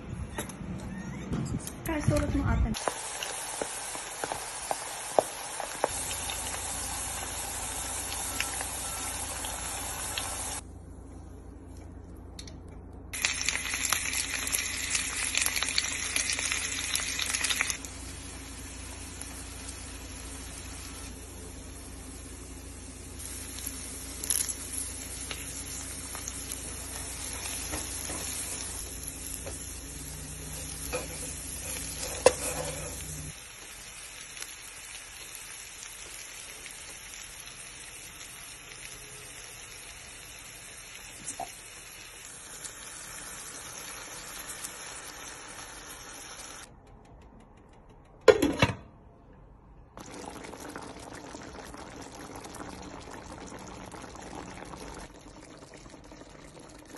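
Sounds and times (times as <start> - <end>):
onions sizzling in a pot: 2.7 - 10.6, 13.1 - 46.7, 50.0 - 56.9.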